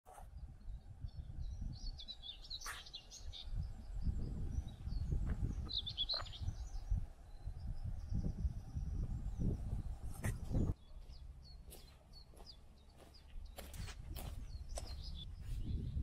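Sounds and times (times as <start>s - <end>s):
small birds twittering: 0.1s - 16.0s.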